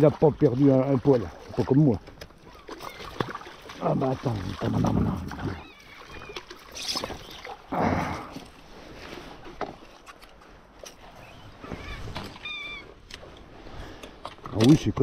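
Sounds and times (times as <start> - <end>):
water lapping and sloshing: 0.0 - 15.0
seabird calls: 2.4 - 3.4, 5.3 - 7.7, 11.0 - 13.0.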